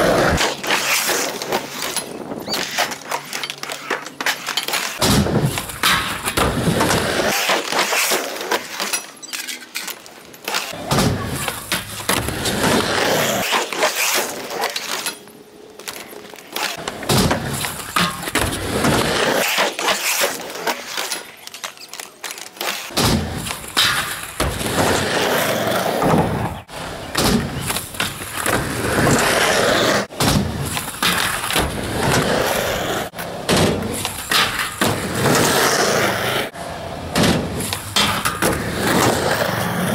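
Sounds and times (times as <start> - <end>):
skateboard wheels rolling on concrete: 0.0 - 39.9
skateboard clattering and smacking: 15.8 - 39.9.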